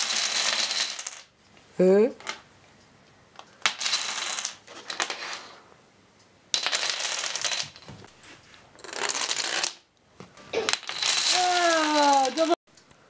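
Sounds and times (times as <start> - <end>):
dominoes clattering on wooden floor: 0.0 - 1.3, 3.6 - 5.6, 6.5 - 7.9, 8.8 - 9.9, 10.6 - 12.6.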